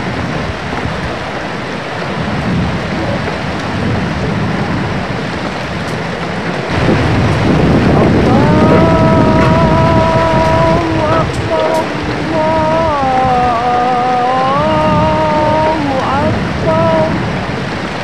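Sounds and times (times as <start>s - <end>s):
heavy rain and wind: 0.0s - 18.0s
long steady pitched tone: 6.7s - 17.5s.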